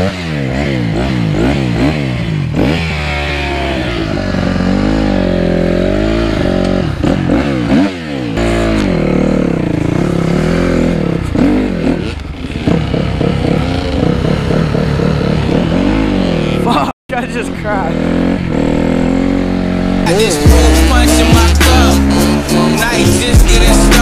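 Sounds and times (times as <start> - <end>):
dirt bike engine revving: 0.0 - 24.0
other dirt bike engines: 0.0 - 24.0.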